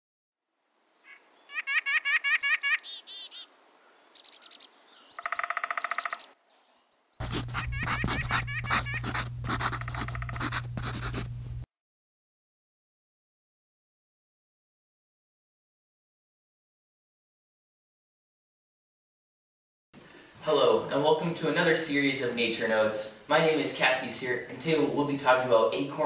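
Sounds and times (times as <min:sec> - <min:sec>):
songbirds chirping and trilling: 0:00.9 - 0:09.0
low steady hum: 0:07.2 - 0:11.7.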